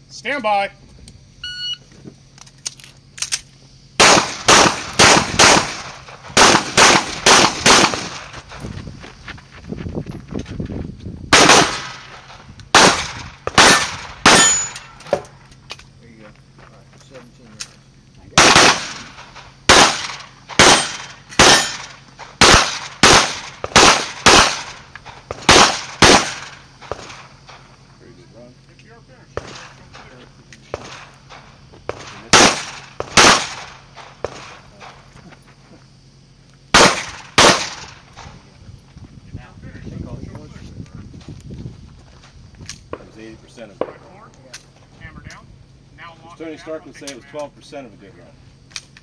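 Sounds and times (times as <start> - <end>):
pistol shots in pairs: 4.0 - 8.4, 11.3 - 15.1, 18.3 - 27.6, 30.7 - 34.6, 36.7 - 38.2.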